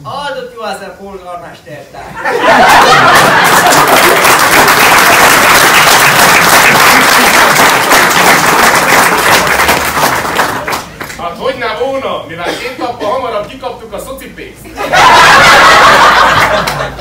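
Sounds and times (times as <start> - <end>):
audience applauding: 2.6 - 11.2, 15.0 - 17.0.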